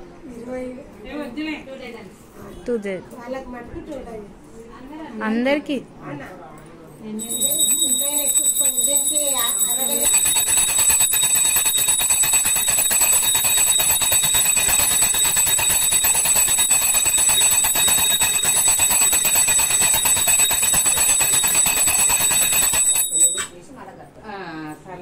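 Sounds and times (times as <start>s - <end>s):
hand bell ringing rapidly: 7.2s - 23.6s.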